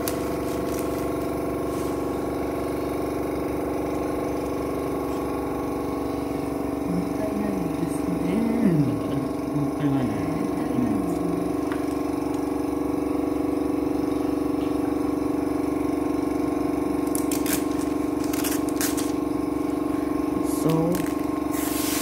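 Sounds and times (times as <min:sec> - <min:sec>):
plastic sheet crinkling: 0:00.0 - 0:02.3, 0:17.1 - 0:19.2, 0:20.6 - 0:22.0
vacuum motor humming: 0:00.0 - 0:22.0.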